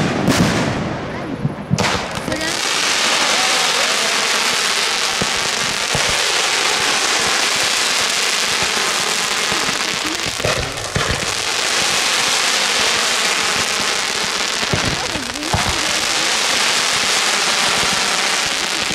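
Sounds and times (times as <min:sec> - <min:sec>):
fireworks crackling: 0:00.0 - 0:18.9
firework launch thumps: 0:09.5 - 0:12.0.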